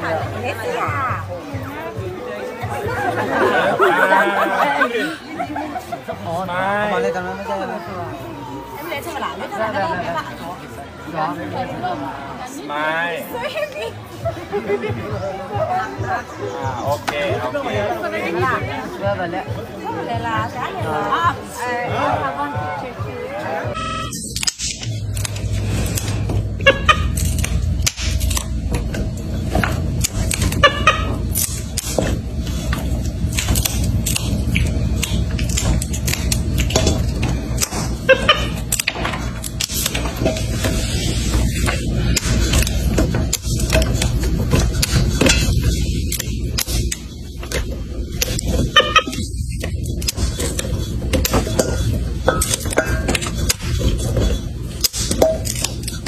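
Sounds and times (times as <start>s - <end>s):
steady low hum: 23.7s - 56.0s
green beans snipping: 27.0s - 28.5s.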